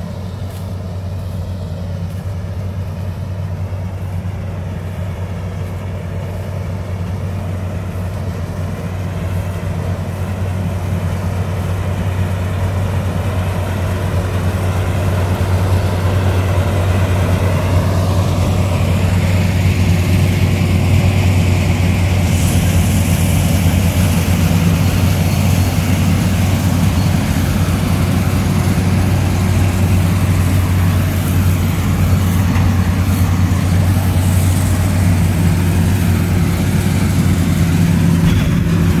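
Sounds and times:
combine harvester engine hum: 0.0s - 39.0s.

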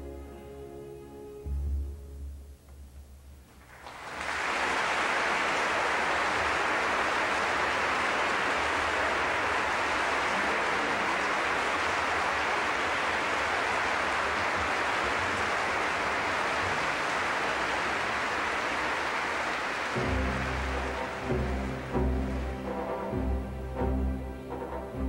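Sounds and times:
orchestra playing: 0.0s - 2.5s, 19.8s - 25.0s
audience applauding: 3.6s - 25.0s.

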